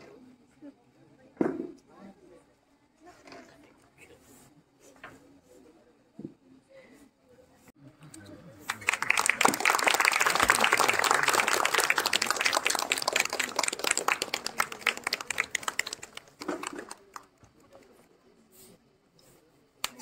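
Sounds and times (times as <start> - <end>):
audience clapping: 8.7 - 17.5.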